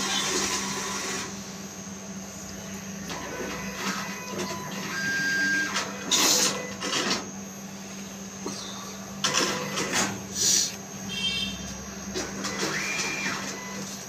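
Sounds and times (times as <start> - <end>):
cash dispenser whirring: 0.0 - 1.5, 3.0 - 7.3, 9.2 - 14.0.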